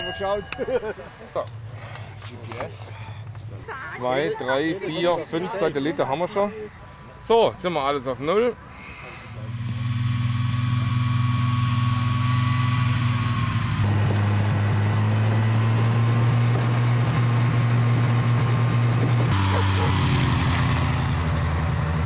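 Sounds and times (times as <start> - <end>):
snowmobile engine running: 9.4 - 18.2, 18.8 - 22.0.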